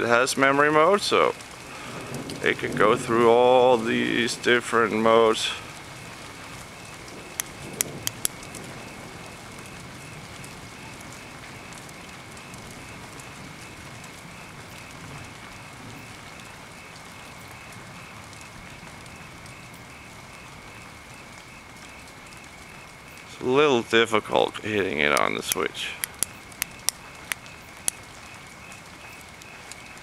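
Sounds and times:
rain falling: 0:00.0 - 0:30.0
sharp clicks: 0:07.3 - 0:08.7, 0:25.1 - 0:28.0.

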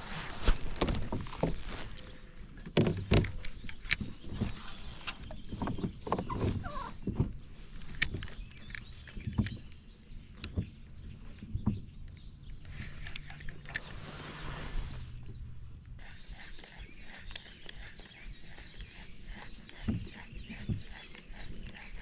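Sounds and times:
fishing gear knocking and clicking: 0:02.6 - 0:04.6, 0:07.1 - 0:09.8.

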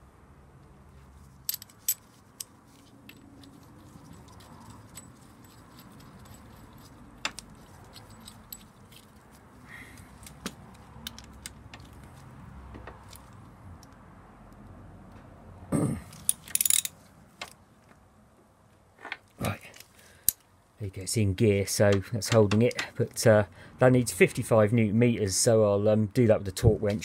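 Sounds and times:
metal tools clinking: 0:01.4 - 0:12.0, 0:16.1 - 0:17.0.

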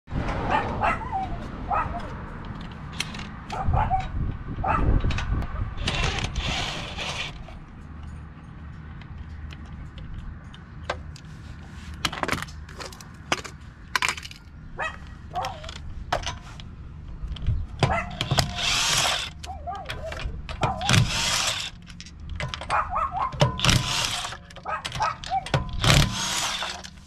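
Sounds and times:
dog barking: 0:00.5 - 0:02.1, 0:03.5 - 0:04.9, 0:14.8 - 0:15.7, 0:17.9 - 0:18.2, 0:19.5 - 0:20.1, 0:22.7 - 0:23.4, 0:24.6 - 0:25.5.

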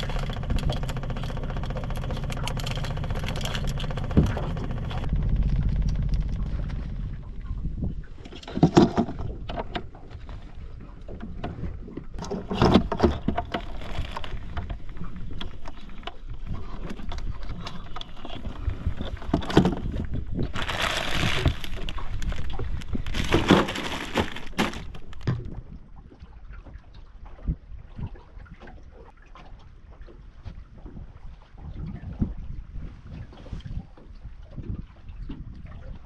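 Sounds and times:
rustling: 0:20.5 - 0:25.4.

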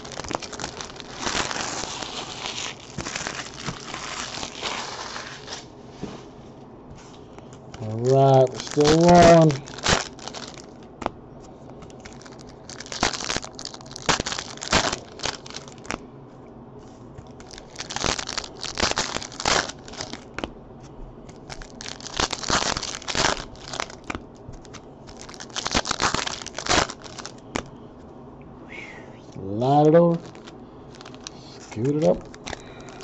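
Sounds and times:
foil wrappers tearing and crinkling: 0:00.0 - 0:05.7, 0:07.8 - 0:11.1, 0:11.8 - 0:16.0, 0:17.3 - 0:20.5, 0:21.3 - 0:27.7, 0:30.1 - 0:33.0.

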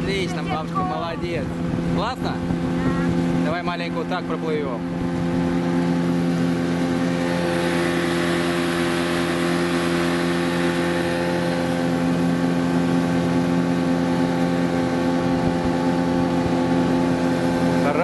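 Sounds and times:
motorboat engine running: 0:00.0 - 0:18.0.

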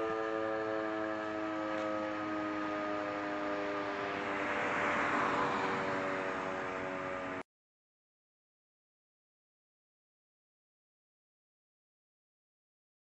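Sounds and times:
air-raid siren: 0:00.0 - 0:07.5
jet aircraft rushing: 0:02.0 - 0:07.4.

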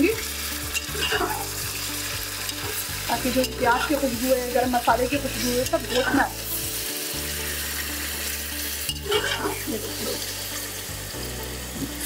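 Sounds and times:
meat frying in oil: 0:00.0 - 0:12.0
spatula stirring and scraping: 0:00.6 - 0:06.8, 0:07.4 - 0:10.2.

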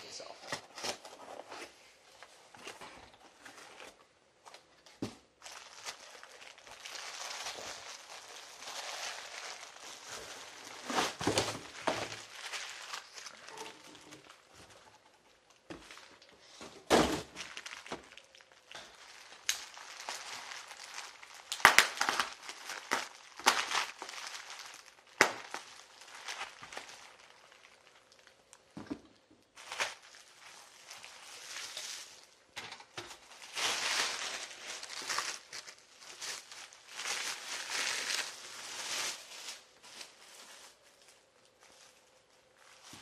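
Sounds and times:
bubble wrap crinkling: 0:02.4 - 0:16.6, 0:17.2 - 0:43.0.

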